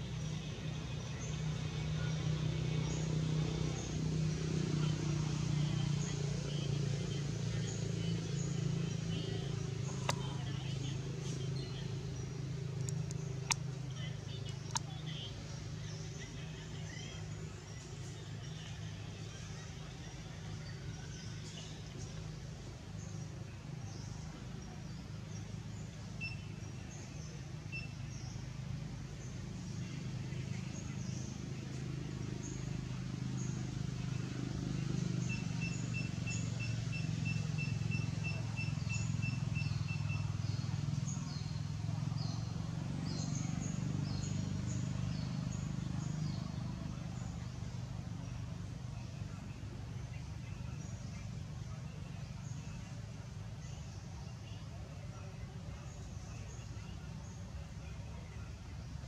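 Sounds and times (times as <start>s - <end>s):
low engine hum: 0.0s - 59.0s
small birds chirping: 0.0s - 59.0s.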